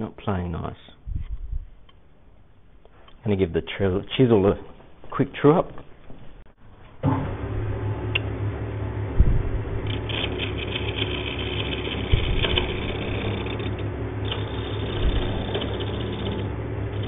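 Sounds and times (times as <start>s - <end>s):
lathe motor humming: 7.9s - 17.0s
hone scratching chisel edge: 9.9s - 17.0s.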